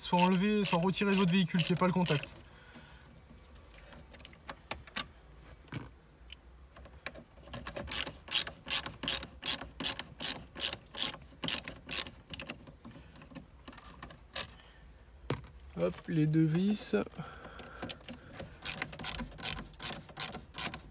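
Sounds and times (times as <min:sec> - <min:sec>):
screwdriver clicking: 0:00.2 - 0:02.3, 0:17.8 - 0:20.9.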